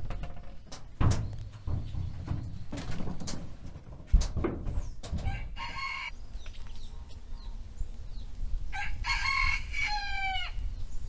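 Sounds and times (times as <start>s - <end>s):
rooster crowing: 5.2s - 6.2s, 8.7s - 10.6s.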